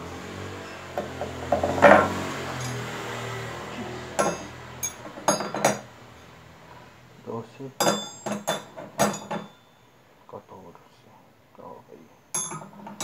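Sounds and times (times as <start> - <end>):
metal wrenches clinking: 1.6 - 2.9, 4.2 - 5.9, 7.8 - 9.6, 12.4 - 13.0.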